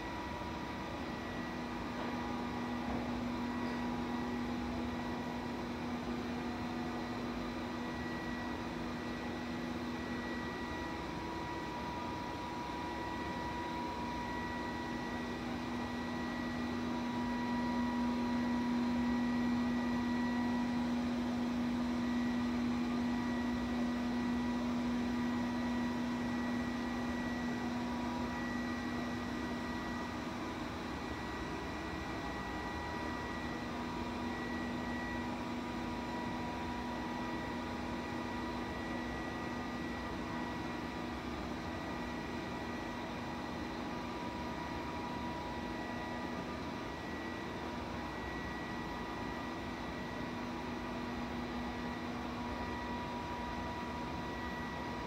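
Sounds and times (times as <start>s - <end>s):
robot vacuum cleaner running: 14.2s - 35.2s.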